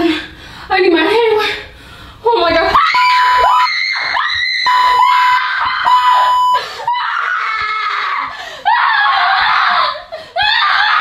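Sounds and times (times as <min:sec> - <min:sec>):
woman screaming: 0:02.7 - 0:11.0
bleep tone: 0:05.9 - 0:06.6.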